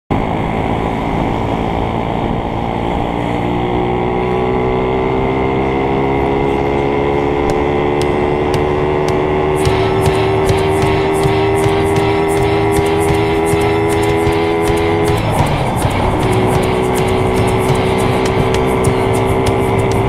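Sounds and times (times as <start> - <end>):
motorcycle engine accelerating: 0.1 - 20.0.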